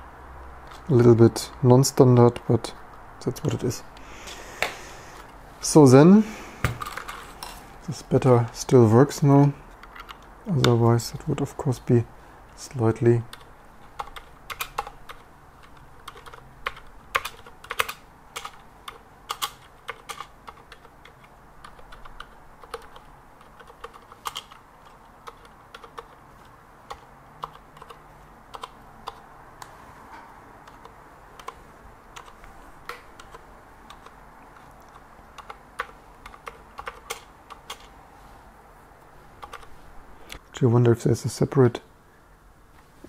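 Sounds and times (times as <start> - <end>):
mechanical keyboard typing: 13.3 - 29.3, 30.6 - 37.9, 39.4 - 39.7.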